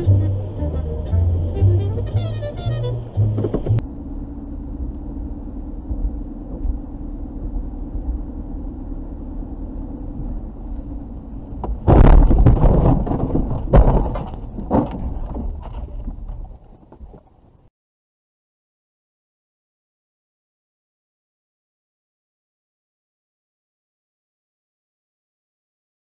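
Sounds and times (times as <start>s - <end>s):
car engine and tyres droning: 0.0s - 17.7s
car scraping along guardrail: 2.1s - 17.3s
loud car crash: 11.7s - 15.8s.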